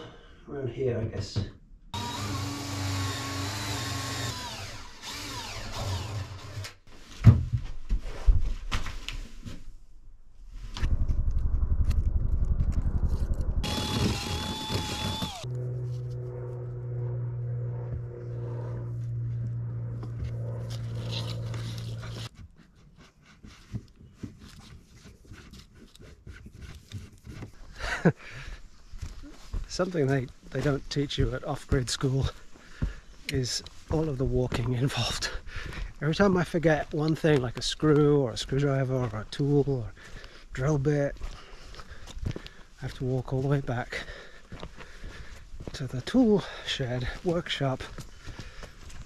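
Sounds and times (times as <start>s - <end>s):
cordless drill whining: 2.0s - 6.8s, 13.6s - 15.5s
steady low hum: 11.0s - 22.3s.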